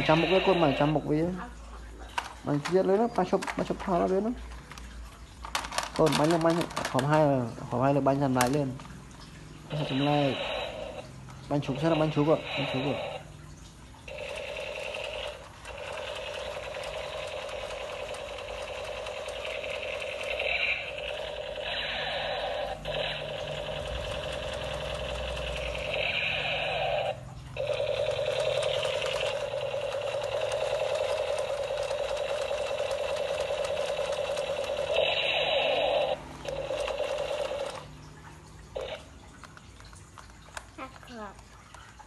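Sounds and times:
toy machine gun sound effect: 0.0 - 1.1, 5.5 - 7.3, 9.7 - 11.0, 11.6 - 13.2, 14.1 - 37.9, 38.8 - 39.1.

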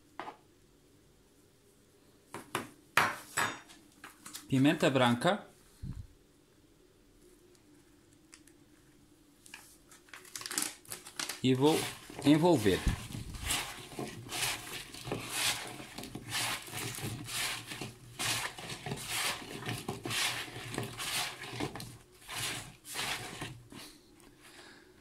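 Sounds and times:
potatoes rustling in plastic bowl: 10.2 - 24.0.

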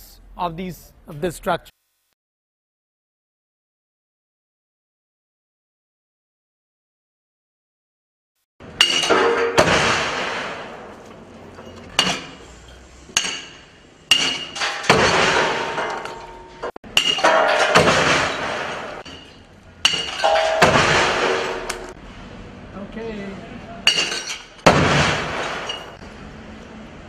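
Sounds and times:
metallic clatter and ringing: 13.2 - 22.0
heavy pendulum impacts on table: 19.9 - 22.0.

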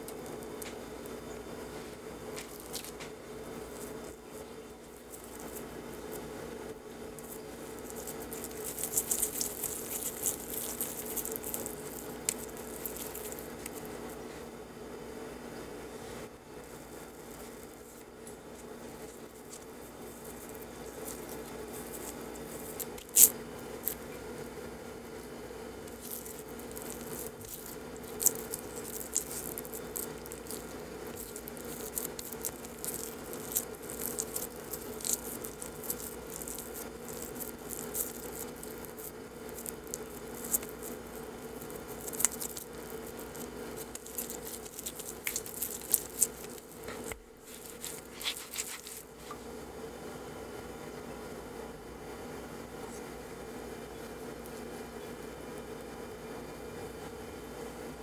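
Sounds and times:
sticky dough squishes: 0.0 - 14.5, 16.4 - 24.6, 25.2 - 49.4.

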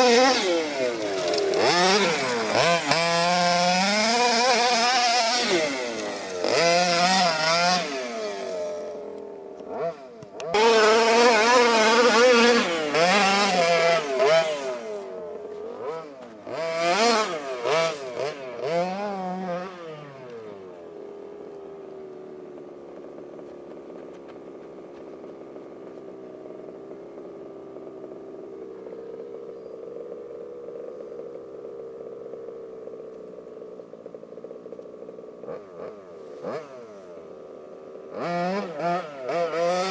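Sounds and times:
two-stroke engine revving: 0.0 - 39.9.

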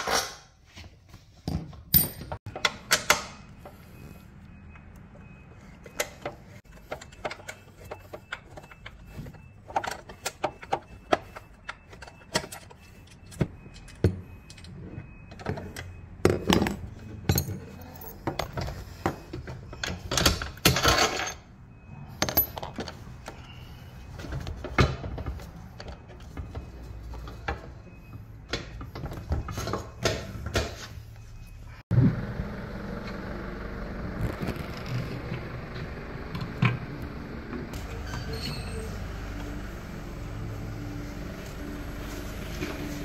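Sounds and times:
metal tools clinking on steel bolts: 1.5 - 3.3, 15.4 - 18.8, 19.7 - 21.5.

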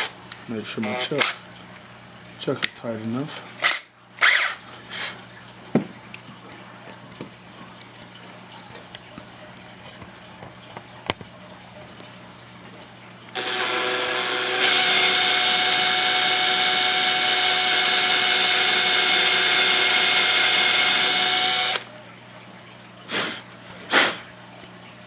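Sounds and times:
cordless drill whining: 13.4 - 21.9.

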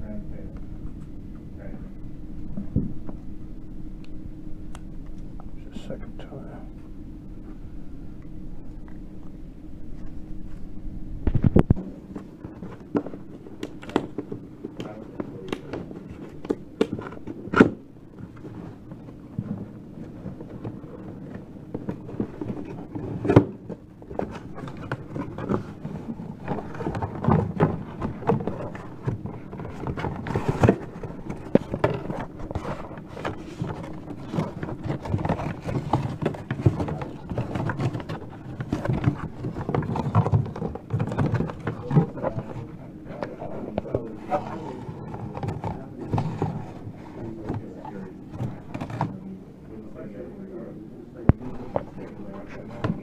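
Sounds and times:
faint steady hum: 0.0 - 53.0
cardboard and cable handled: 11.2 - 49.4, 51.3 - 53.0.

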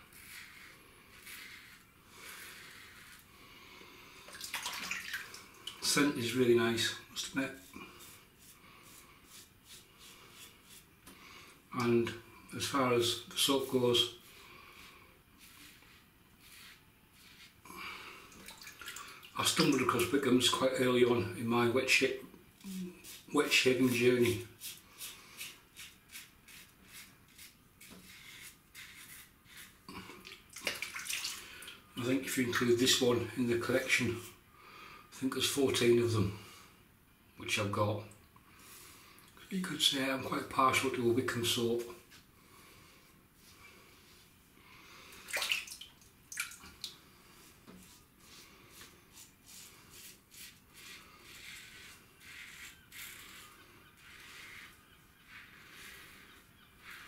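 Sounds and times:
razor scraping stubble: 0.0 - 3.3, 7.2 - 10.9, 15.4 - 17.6, 22.6 - 29.9, 47.7 - 57.0.

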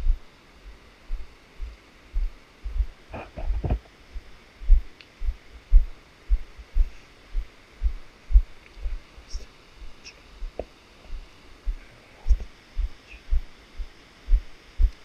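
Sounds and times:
footsteps thudding: 2.2 - 3.8.

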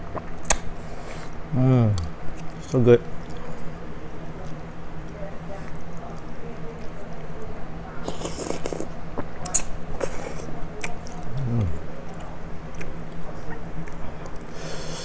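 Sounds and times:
wet chewing: 1.9 - 14.7
slurping noodles: 8.0 - 8.9.

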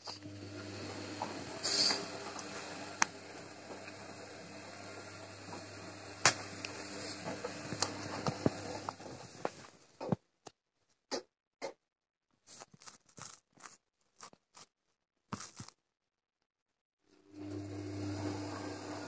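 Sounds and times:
washing machine motor hum: 0.0 - 9.8, 17.2 - 19.0.

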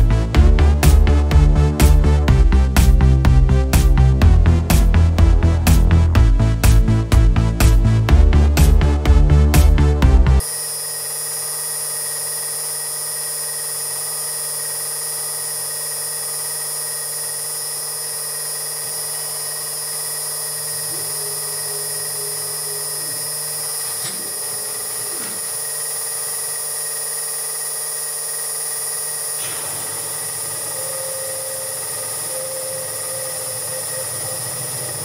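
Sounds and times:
axis drive whine: 8.8 - 35.0
milling spindle high whine: 10.4 - 35.0.

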